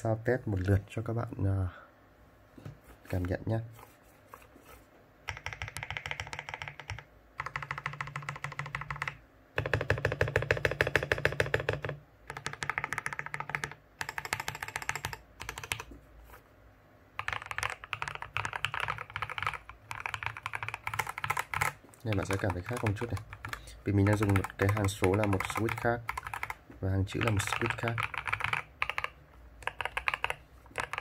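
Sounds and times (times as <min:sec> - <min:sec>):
mechanical keyboard typing: 0:05.3 - 0:15.9, 0:17.2 - 0:31.0.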